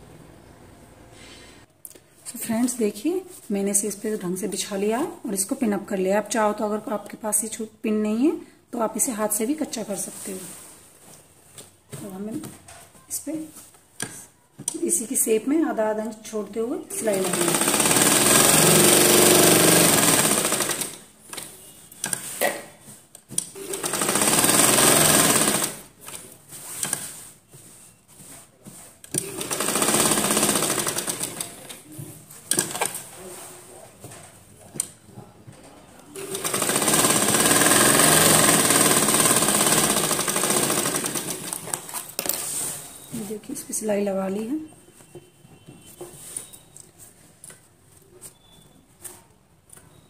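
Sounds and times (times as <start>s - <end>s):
sewing machine stitching: 17.0s - 21.1s, 23.4s - 25.9s, 29.1s - 31.8s, 32.5s - 33.1s, 36.1s - 42.4s.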